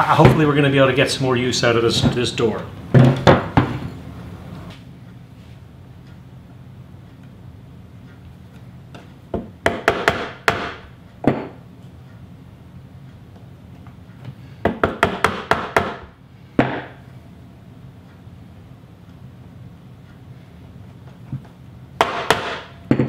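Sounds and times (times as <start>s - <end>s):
chisel chopping wood: 9.7s - 10.8s, 22.0s - 23.0s.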